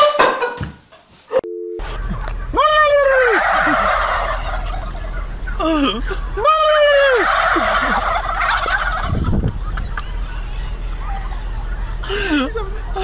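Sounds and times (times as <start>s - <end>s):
turkeys gobbling: 0.0s - 0.6s, 1.8s - 13.0s
long turkey call: 1.8s - 9.1s.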